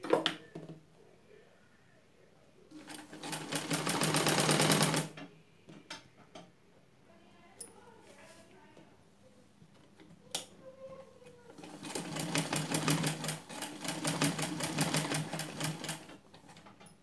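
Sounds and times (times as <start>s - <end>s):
sewing machine stitching: 2.8s - 5.1s, 11.6s - 16.7s.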